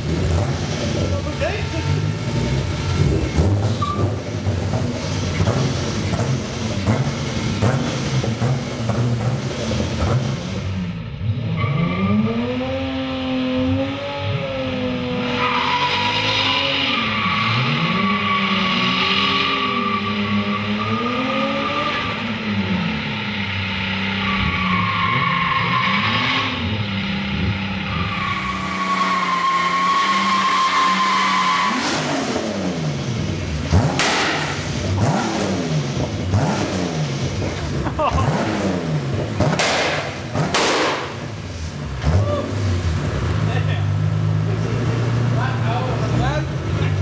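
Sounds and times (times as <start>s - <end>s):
car engine revving: 0.0s - 47.0s
tyres squealing: 27.9s - 32.2s.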